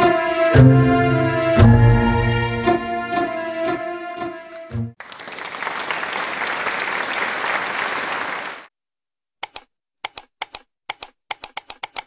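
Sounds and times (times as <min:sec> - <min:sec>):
crowd clapping: 0:05.0 - 0:08.7
keyboard typing clicks: 0:09.4 - 0:12.0.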